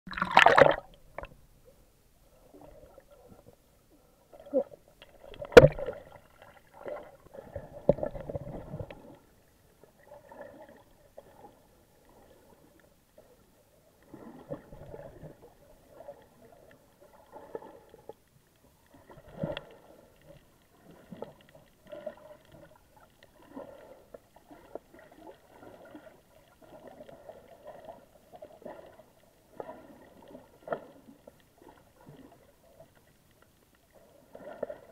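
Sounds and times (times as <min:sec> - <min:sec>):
camera splashing into water: 0:00.1 - 0:00.9
underwater gurgling and sloshing: 0:00.1 - 0:34.9.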